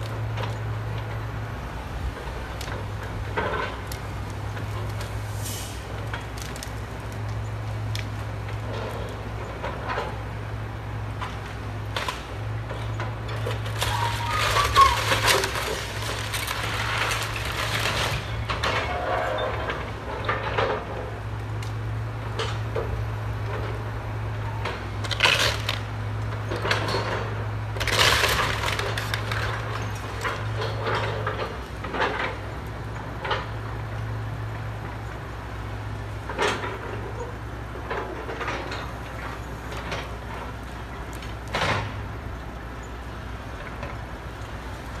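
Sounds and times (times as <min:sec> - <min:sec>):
excavator diesel engine: 0:00.0 - 0:45.0
splintering timber crashes: 0:13.4 - 0:19.4, 0:27.8 - 0:31.4.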